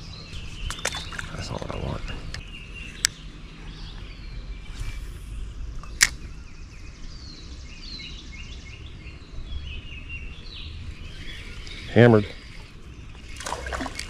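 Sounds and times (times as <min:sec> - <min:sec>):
birds chirping: 0:00.0 - 0:14.0
low steady rumble: 0:00.0 - 0:14.0
sharp click: 0:05.8 - 0:06.2.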